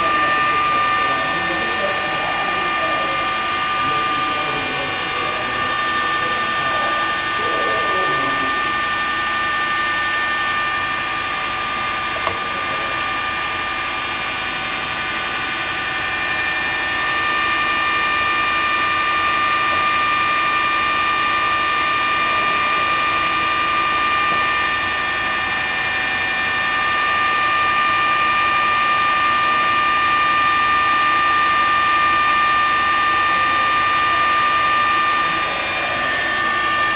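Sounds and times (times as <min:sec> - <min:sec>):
drill press motor whining: 0:00.0 - 0:36.9
click: 0:12.2 - 0:12.4, 0:19.7 - 0:19.9.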